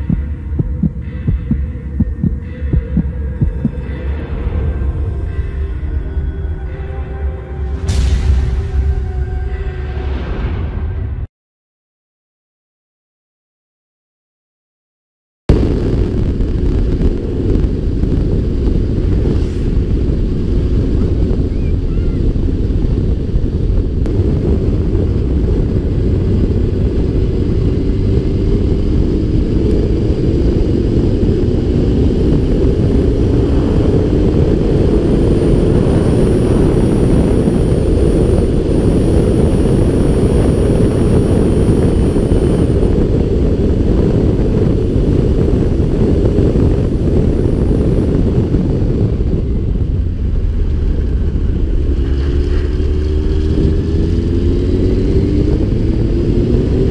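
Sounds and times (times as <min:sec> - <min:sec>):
motorcycle engine running: 0:00.0 - 0:03.8, 0:24.1 - 0:56.9
wind rush on microphone: 0:00.0 - 0:05.5, 0:15.5 - 0:56.9.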